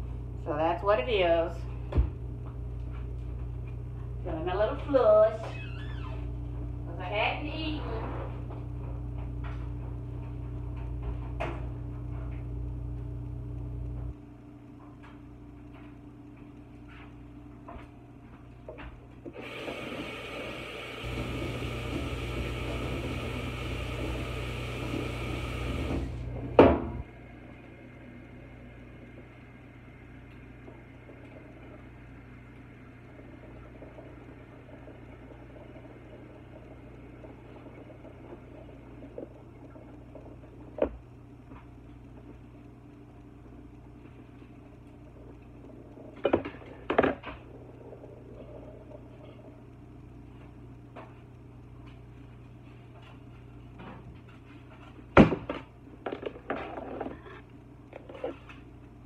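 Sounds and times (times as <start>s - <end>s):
faint steady hum: 0.0s - 59.0s
kitchen appliance humming: 18.2s - 53.2s.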